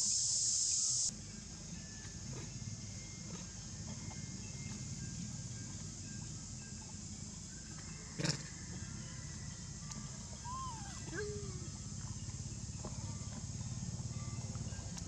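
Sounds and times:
high hiss: 0.0 - 1.1
macaque calls: 10.4 - 11.8.

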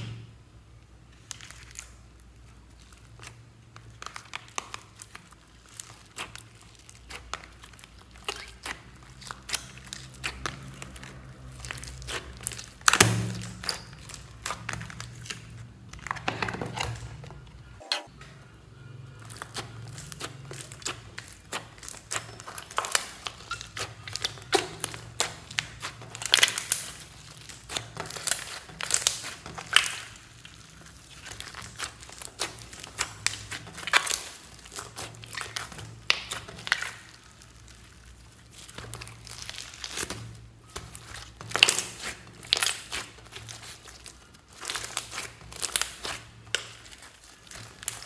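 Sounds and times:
slime squelching: 0.0 - 48.0.

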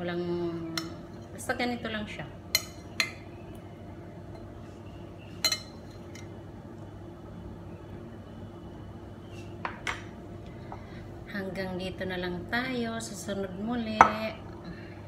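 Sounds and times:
steady low hum: 0.0 - 15.0
clinks against glass bowl: 5.4 - 6.3.

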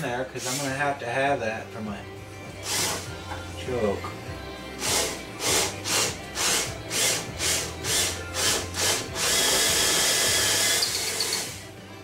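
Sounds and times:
power drill boring wood: 4.8 - 11.7.

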